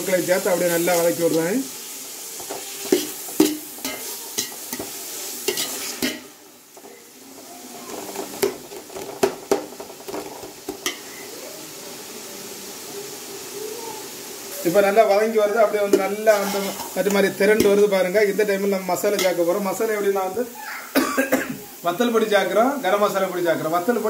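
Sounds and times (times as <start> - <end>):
food sizzling in hot oil: 0.0 - 24.0
ladle scraping a metal pot: 16.2 - 17.0.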